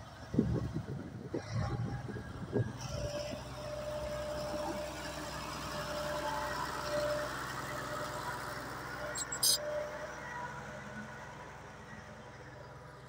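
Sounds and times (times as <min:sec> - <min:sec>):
diesel engine running: 0:00.1 - 0:13.0.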